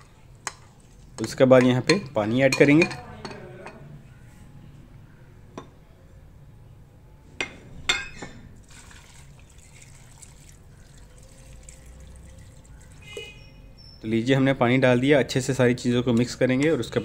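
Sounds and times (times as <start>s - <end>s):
water pouring into pot: 8.6s - 13.1s.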